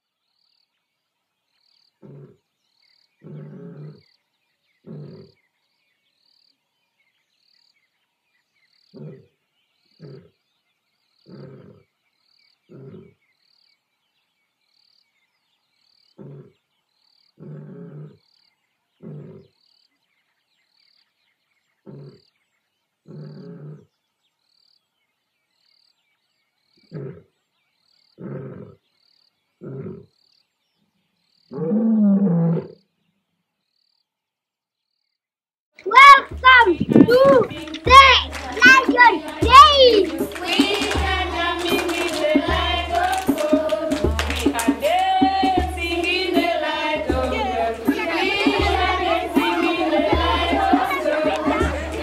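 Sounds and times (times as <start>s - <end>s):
lion grunting and roaring: 2.0s - 2.4s, 3.2s - 4.0s, 4.8s - 5.3s, 9.0s - 9.3s, 10.0s - 10.3s, 11.3s - 11.9s, 12.7s - 13.2s, 16.2s - 16.6s, 17.4s - 18.2s, 19.0s - 19.5s, 21.9s - 22.2s, 23.1s - 23.8s, 28.2s - 28.8s, 29.6s - 30.1s.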